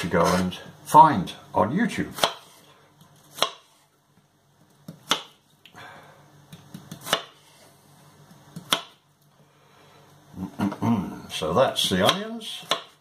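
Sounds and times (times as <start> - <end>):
knife chopping on wooden board: 2.1 - 2.6, 3.3 - 3.8, 4.8 - 5.4, 6.5 - 7.4, 8.5 - 9.0, 11.9 - 13.0.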